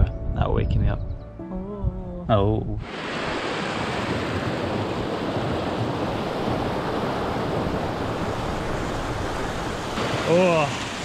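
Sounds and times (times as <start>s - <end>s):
stream rushing over rocks: 2.8s - 11.0s.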